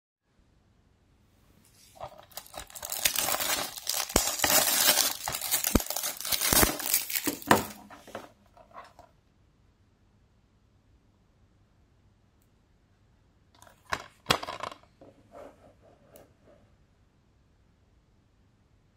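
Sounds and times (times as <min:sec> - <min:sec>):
plastic wrap crinkling and tearing: 0:01.9 - 0:08.2.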